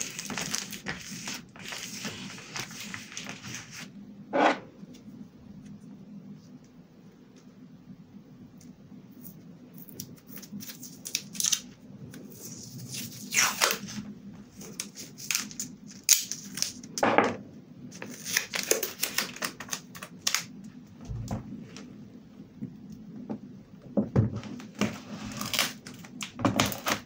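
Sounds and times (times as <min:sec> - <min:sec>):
tape tearing and crackling: 0:00.0 - 0:03.8, 0:09.9 - 0:11.7, 0:12.3 - 0:14.0, 0:14.6 - 0:16.9, 0:18.0 - 0:20.5, 0:24.8 - 0:27.0.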